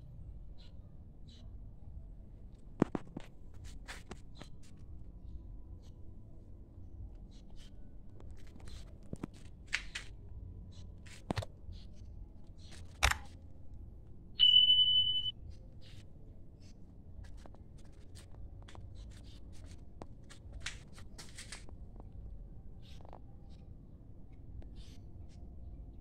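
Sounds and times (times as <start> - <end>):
faint clicks and rustles: 7.3 - 13.4, 15.5 - 22.2
sharp click: 12.9 - 13.3
high electronic ding: 14.4 - 15.3.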